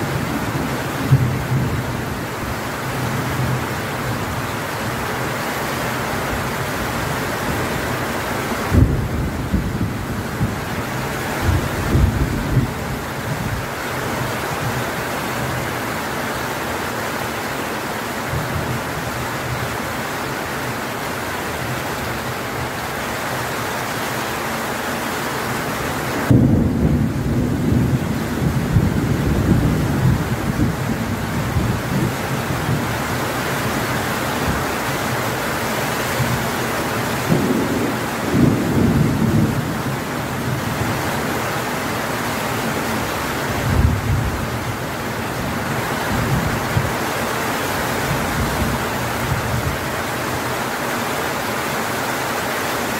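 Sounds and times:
heavy rain hissing: 0.0 - 52.9
thunder rumbling: 8.7 - 13.6, 26.2 - 34.7, 36.2 - 41.2, 42.8 - 47.0.

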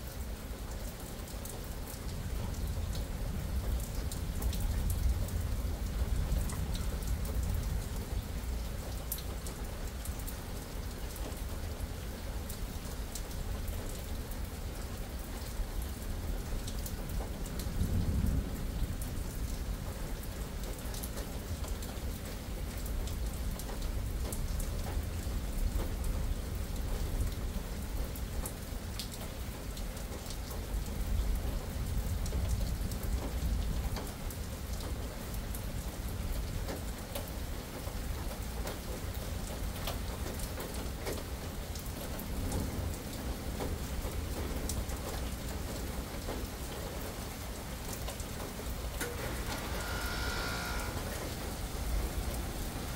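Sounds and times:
rain on pavement and foliage: 0.0 - 52.9
raindrops ticking: 19.4 - 26.1, 26.8 - 49.4.

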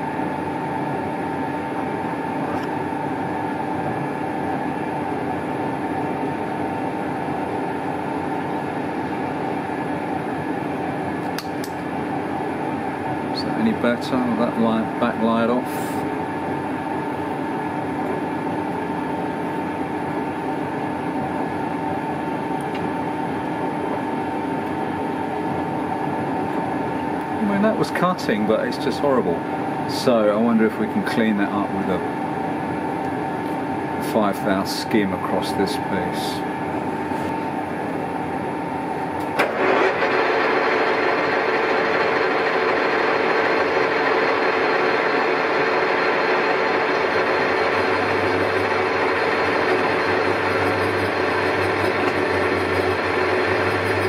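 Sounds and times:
lathe running: 39.4 - 54.0
metal shaft chatter ringing: 47.6 - 54.0.

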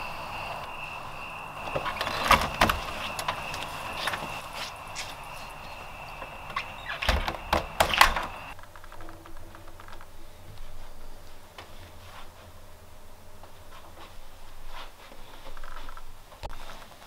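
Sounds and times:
high-pitched tone with hiss: 0.0 - 15.8
door latch clicks and knocks: 6.9 - 8.5.

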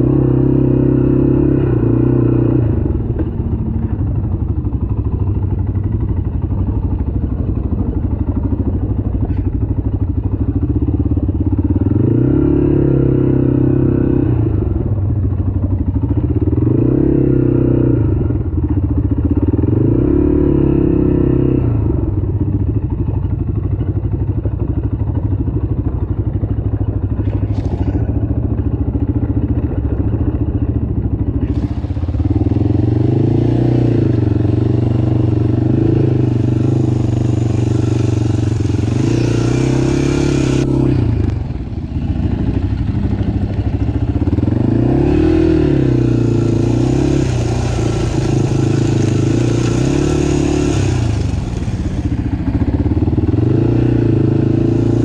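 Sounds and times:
off-road vehicle engine revving: 0.0 - 4.2, 11.6 - 15.0, 16.2 - 18.5, 19.3 - 22.2, 27.2 - 30.6, 31.4 - 55.0.

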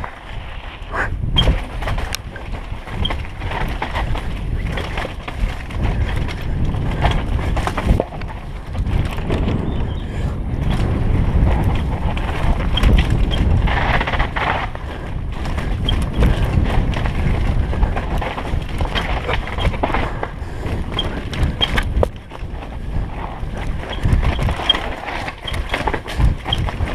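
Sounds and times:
tyres rumbling over dirt and rocks: 0.0 - 26.9
wind rushing over microphone: 0.0 - 26.9
bike knocking over bumps: 1.4 - 9.8, 10.6 - 26.9.

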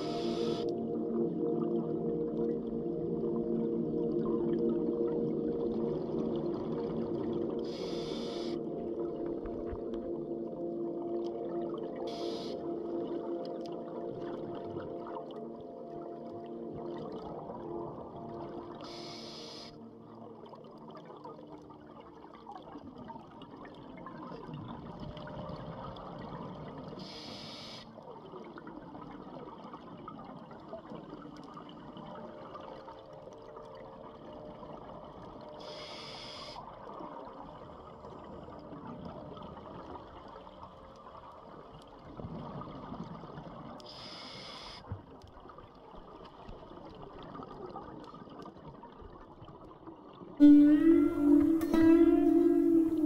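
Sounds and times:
regulator inhalation hiss: 0.0 - 0.7, 7.7 - 8.6, 18.9 - 19.7, 27.0 - 27.8, 35.6 - 36.6.

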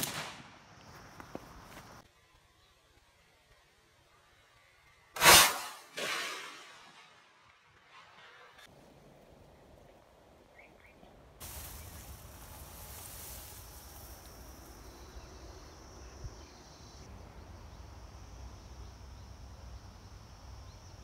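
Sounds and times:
insects trilling: 11.4 - 21.0.

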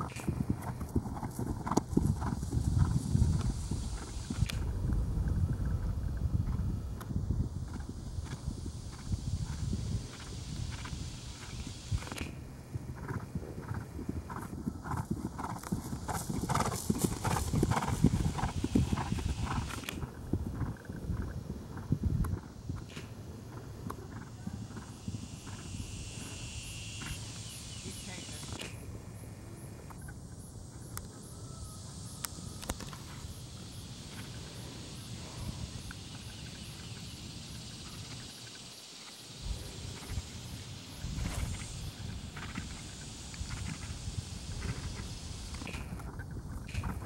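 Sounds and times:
horse hoofbeats cantering on grass: 0.0 - 4.6, 12.8 - 26.2, 41.0 - 47.0.

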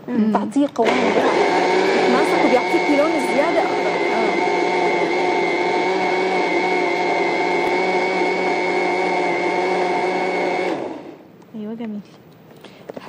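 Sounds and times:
blender motor whine: 0.8 - 11.2.

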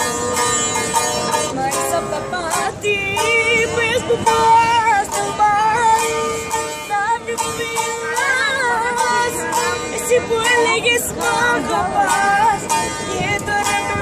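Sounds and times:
boy singing: 0.0 - 14.0
strummed long-necked lute: 0.0 - 14.0.

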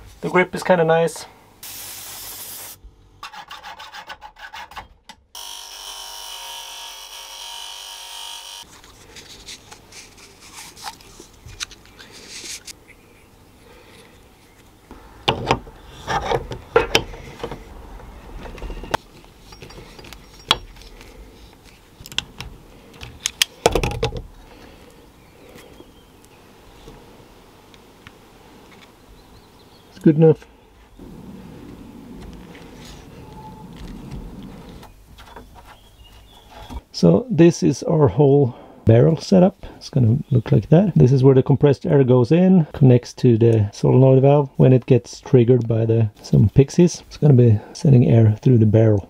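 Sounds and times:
cutting metal pipe: 5.4 - 8.7.

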